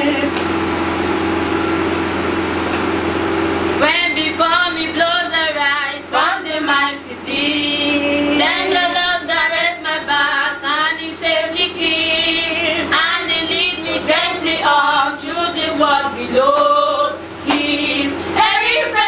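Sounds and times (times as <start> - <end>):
woman and girls singing church song: 3.8 - 19.0.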